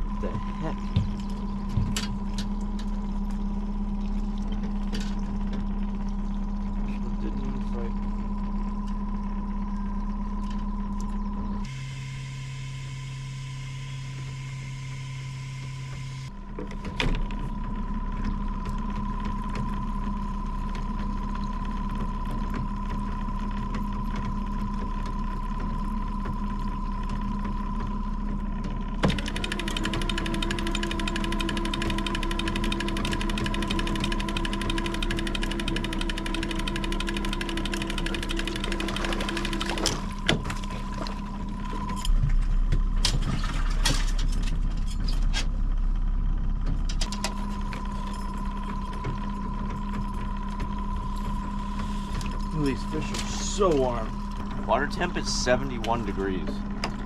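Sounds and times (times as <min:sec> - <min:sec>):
boat motor running: 0:00.0 - 0:57.0
sharp knocks on boat: 0:00.4 - 0:02.9, 0:16.6 - 0:17.6, 0:38.9 - 0:44.8.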